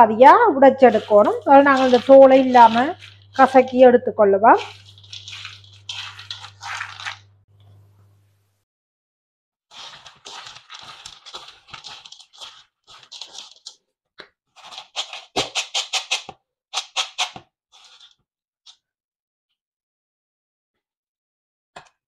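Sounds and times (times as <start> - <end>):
peanuts rustling rubbed between palms: 0.5 - 7.4, 9.7 - 13.8, 14.6 - 18.2.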